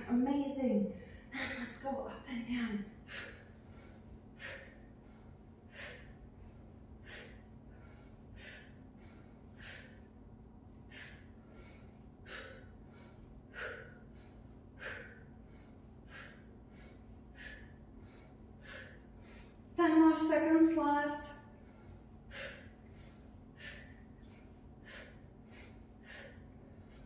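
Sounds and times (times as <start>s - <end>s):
woman inhaling softly: 7.0s - 10.1s, 10.8s - 19.6s, 21.6s - 27.0s.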